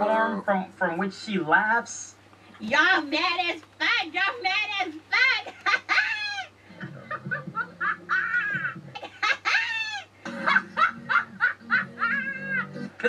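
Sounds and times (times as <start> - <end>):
girl laughing loudly: 5.4 - 6.5, 7.1 - 12.7.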